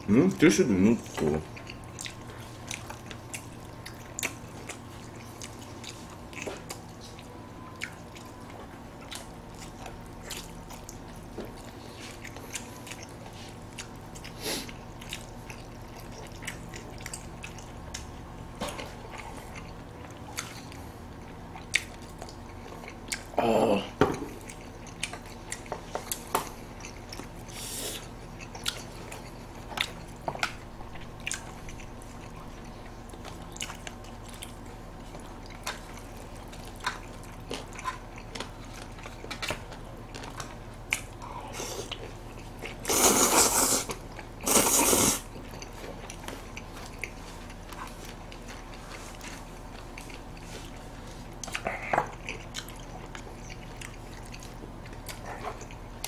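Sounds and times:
chewing and mouth smacking: 1.0s - 23.4s, 24.2s - 56.0s
slurping noodles: 42.8s - 45.3s.

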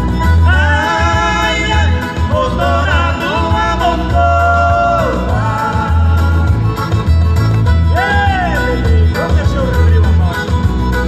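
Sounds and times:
acoustic guitar: 0.0s - 11.0s
keyboard: 0.0s - 11.0s
pulsing bass line: 0.0s - 11.0s
men singing in harmony: 0.3s - 6.8s.

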